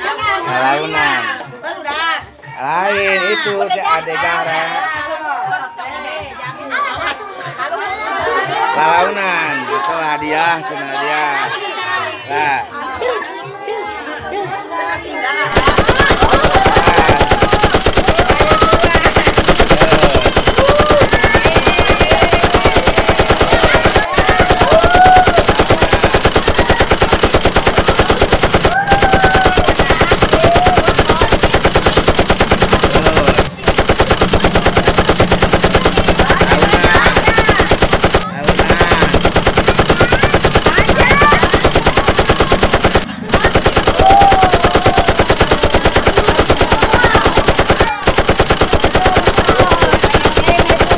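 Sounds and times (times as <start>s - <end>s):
faint children's voices: 0.0s - 50.9s
snare drumroll: 15.5s - 48.1s.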